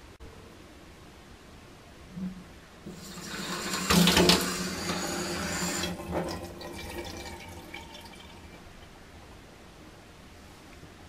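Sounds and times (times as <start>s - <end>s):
faucet water running into sink: 2.9s - 8.6s.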